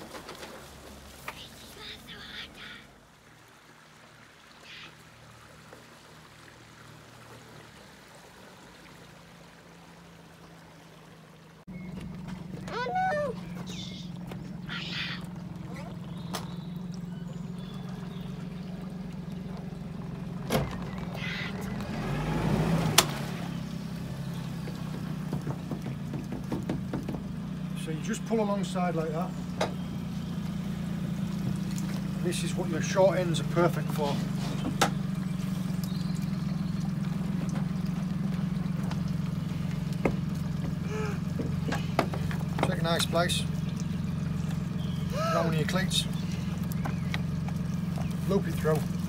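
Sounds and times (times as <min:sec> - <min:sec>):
outboard motor idling: 0:00.0 - 0:49.0
sharp knocks: 0:25.2 - 0:27.4.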